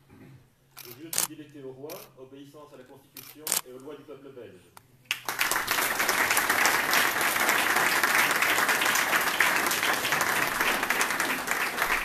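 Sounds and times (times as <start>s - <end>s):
people clapping: 5.1s - 12.0s.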